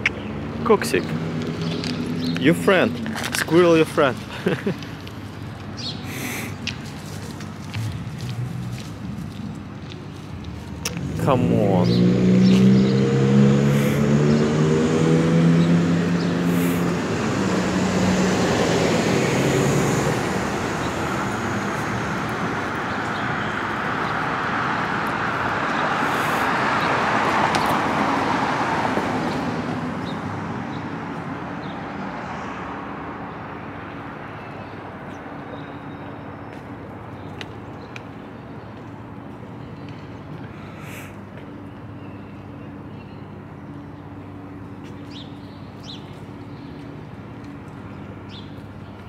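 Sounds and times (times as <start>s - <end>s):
car passing with tyre noise: 6.4s - 35.4s
engine revving: 10.9s - 21.4s.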